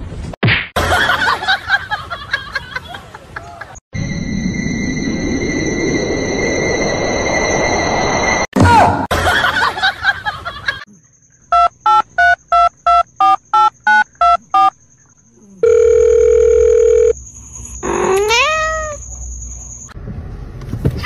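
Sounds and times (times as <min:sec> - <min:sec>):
telephone keypad beeps: 0:11.5 - 0:14.7
dial tone: 0:15.6 - 0:17.2
cat meowing: 0:17.8 - 0:19.0.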